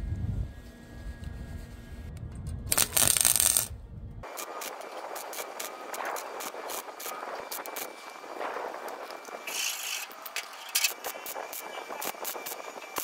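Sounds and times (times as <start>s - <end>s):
welder arc crackling: 2.7s - 13.0s.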